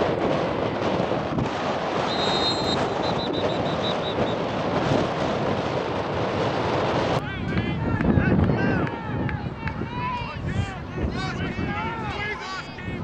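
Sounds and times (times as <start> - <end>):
wind buffeting microphone: 0.0 - 13.0
high whistle tone: 2.1 - 4.4.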